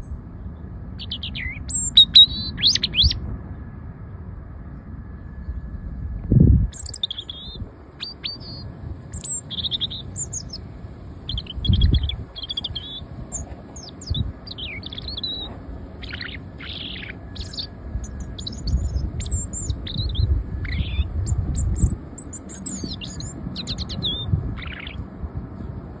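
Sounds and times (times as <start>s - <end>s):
robin singing: 0.0s - 3.2s, 6.7s - 25.1s.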